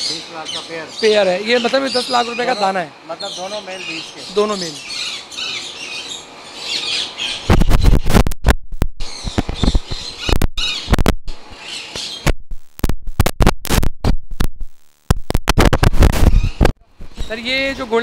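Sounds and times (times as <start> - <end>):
parrots squawking and chirping: 0.0 - 8.1, 9.0 - 12.2, 16.3 - 16.6.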